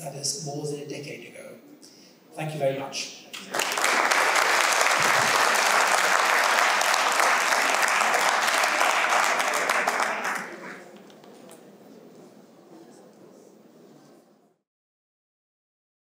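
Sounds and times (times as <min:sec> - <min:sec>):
audience applauding: 0:03.4 - 0:11.2.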